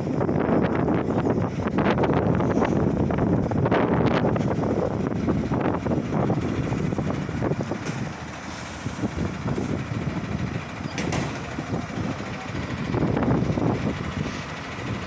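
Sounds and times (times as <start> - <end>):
diesel truck engine running: 0.0 - 15.0
air brakes hissing: 7.9 - 10.0, 13.6 - 15.0.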